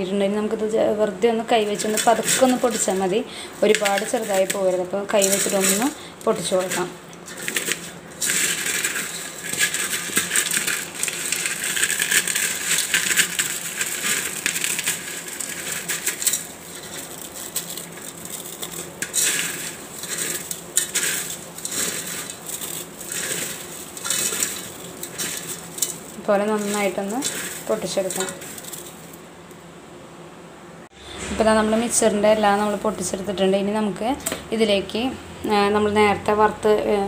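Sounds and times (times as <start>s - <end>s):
pieces pattering on metal bowl: 1.4s - 29.2s
fried noodles crackling and crunching: 1.5s - 29.3s.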